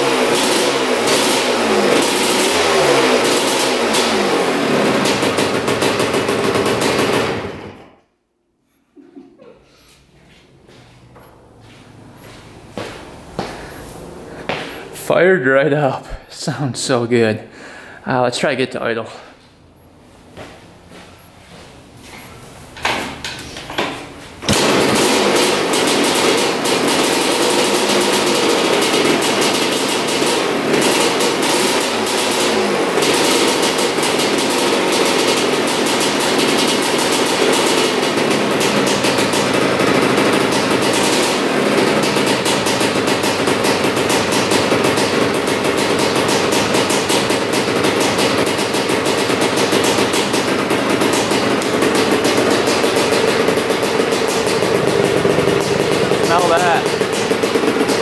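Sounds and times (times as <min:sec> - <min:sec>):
motorcycle engine sputtering and running: 0:00.0 - 0:08.0, 0:10.7 - 0:15.0, 0:22.2 - 0:58.0.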